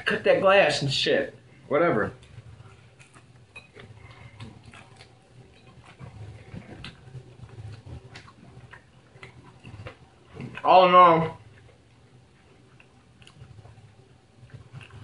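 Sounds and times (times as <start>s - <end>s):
person chewing with wet mouth clicks: 3.0s - 10.6s, 11.5s - 15.0s.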